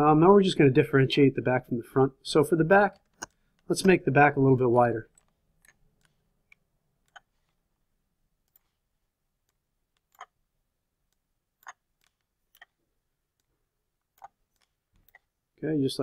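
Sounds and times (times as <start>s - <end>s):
computer mouse clicks: 2.9s - 4.0s, 5.1s - 7.6s, 9.4s - 10.4s, 11.1s - 12.8s, 14.1s - 15.3s.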